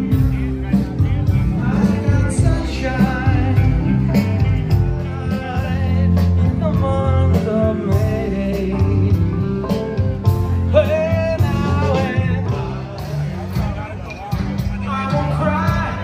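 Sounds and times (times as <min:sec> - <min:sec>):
person singing: 0:00.0 - 0:13.6, 0:14.8 - 0:16.0
drums: 0:00.0 - 0:16.0
electric guitar: 0:00.0 - 0:16.0.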